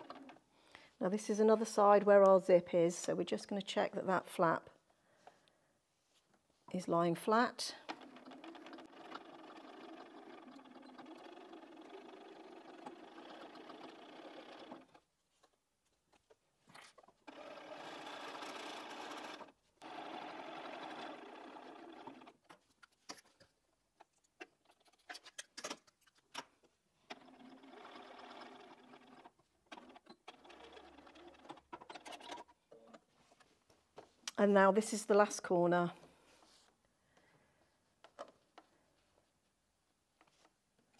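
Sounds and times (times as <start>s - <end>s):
sewing machine stitching: 0.0s - 0.4s, 7.2s - 15.1s, 16.7s - 23.4s, 27.0s - 33.0s.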